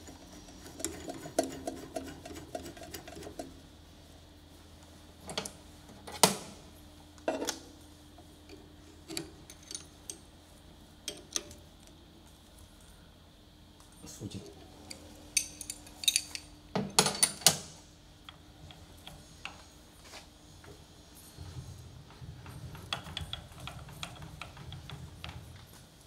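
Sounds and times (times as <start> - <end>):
faint steady hum: 0.0 - 26.0
metal tools clicking and knocking: 14.9 - 17.6.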